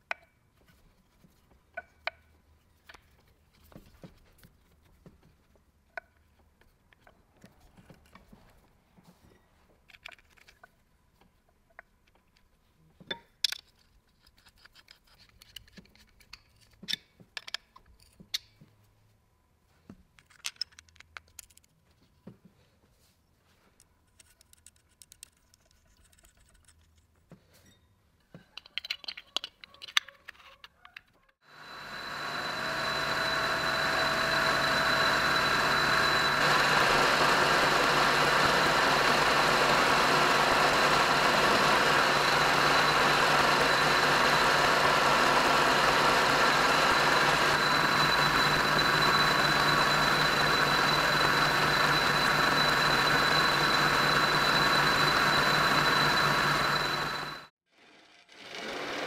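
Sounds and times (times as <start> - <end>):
electric motor running: 31.4 - 57.5.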